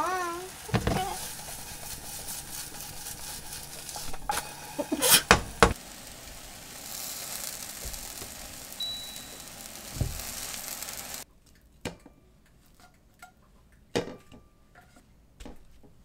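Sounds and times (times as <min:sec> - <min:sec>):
food sizzling in frying pan: 0:00.0 - 0:11.3.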